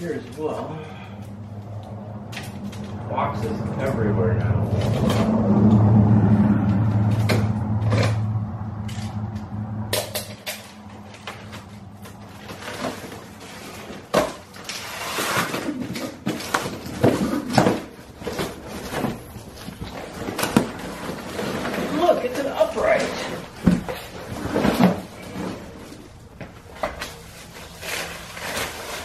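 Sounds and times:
low steady hum: 0:00.0 - 0:29.0
cardboard box tearing and rustling: 0:11.2 - 0:26.0, 0:26.7 - 0:29.0.

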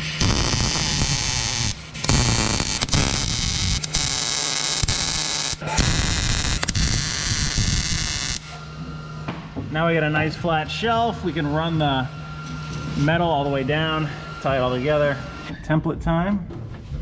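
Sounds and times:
welder arc crackling: 0:00.0 - 0:08.6.

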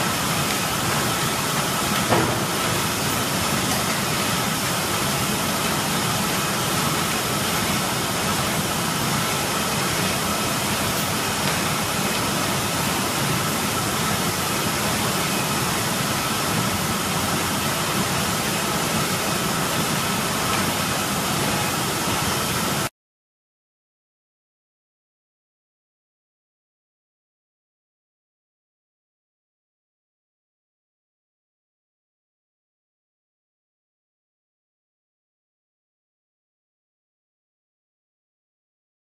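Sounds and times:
machine running evenly: 0:00.0 - 0:22.9.

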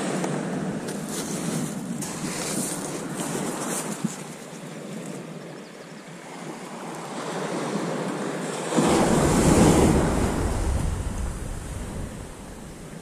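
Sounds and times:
surf on shingle beach: 0:00.0 - 0:13.0
wind buffeting microphone: 0:07.6 - 0:13.0.

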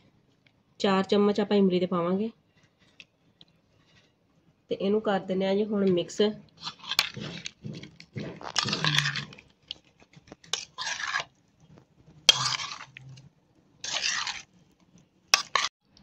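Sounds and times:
spoon scraping and mashing in bowl: 0:06.6 - 0:15.7.

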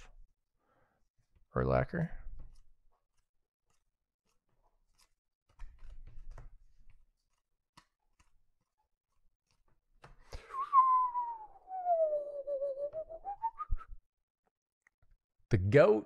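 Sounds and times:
trading cards rustling: 0:02.4 - 0:10.4
person whistling falling note: 0:10.4 - 0:14.0.

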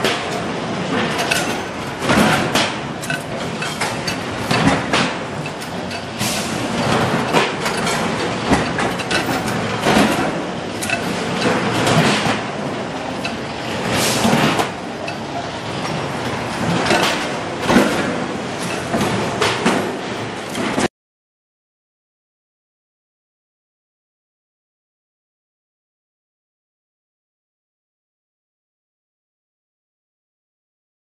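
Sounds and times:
metal clanks and knocks: 0:00.0 - 0:20.9.

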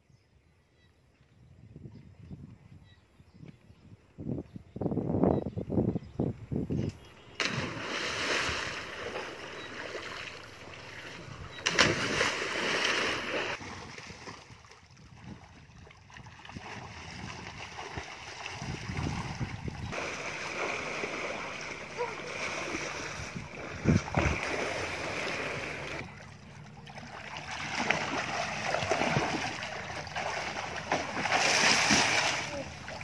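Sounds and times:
splashes of people jumping into water: 0:07.4 - 0:14.4, 0:19.9 - 0:26.1, 0:26.9 - 0:33.0
sloshing water from swimming: 0:07.4 - 0:33.0.

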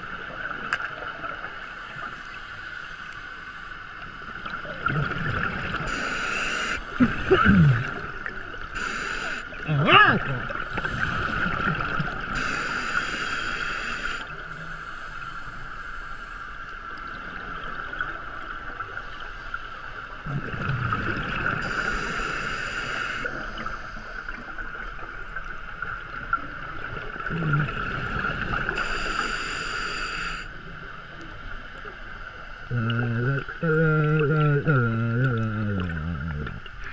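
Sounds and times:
regulator inhale hiss: 0:05.8 - 0:07.0, 0:08.7 - 0:09.6, 0:10.7 - 0:11.6, 0:12.3 - 0:16.7, 0:21.6 - 0:24.5, 0:28.1 - 0:30.6
exhaled bubbles rushing: 0:20.3 - 0:21.7.

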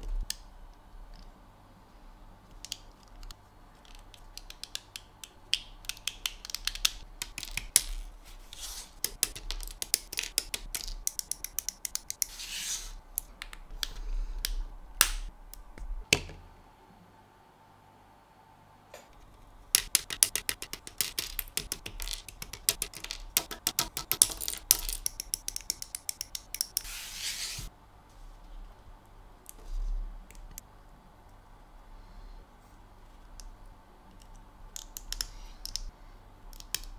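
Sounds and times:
brushing across cutting mat: 0:08.3 - 0:09.0, 0:12.2 - 0:13.0, 0:26.8 - 0:28.2.

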